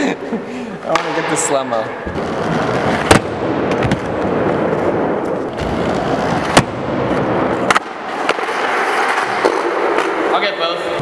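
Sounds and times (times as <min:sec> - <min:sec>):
skateboard wheels rumbling: 0:02.1 - 0:10.3.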